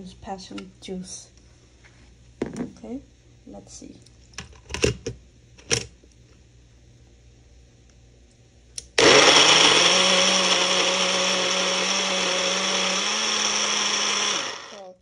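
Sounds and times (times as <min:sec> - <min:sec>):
blender running: 0:08.9 - 0:15.0.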